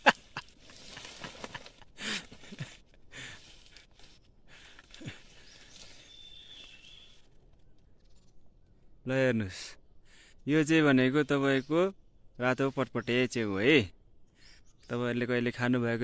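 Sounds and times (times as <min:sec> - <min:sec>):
rustling of leaves and stems: 0:00.0 - 0:08.1
footsteps in undergrowth: 0:00.2 - 0:08.1.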